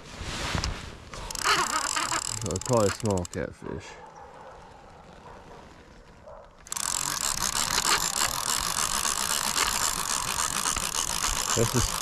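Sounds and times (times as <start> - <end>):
fishing reel ratcheting clicks: 1.2 - 3.5, 6.6 - 12.0.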